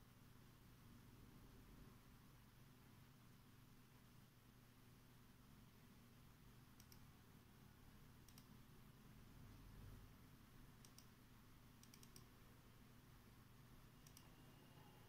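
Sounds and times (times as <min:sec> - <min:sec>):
low room hum: 0:00.0 - 0:15.0
computer mouse clicks: 0:06.7 - 0:07.1, 0:08.2 - 0:08.6, 0:10.8 - 0:11.2, 0:11.8 - 0:12.3, 0:14.0 - 0:14.4.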